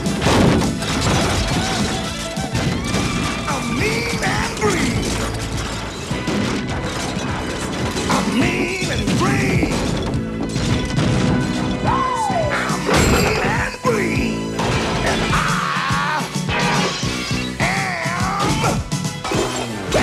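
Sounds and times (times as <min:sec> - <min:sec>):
crashing destruction: 0:00.0 - 0:13.7, 0:14.5 - 0:20.0
action film music: 0:00.0 - 0:20.0
wavering wails: 0:11.8 - 0:12.9.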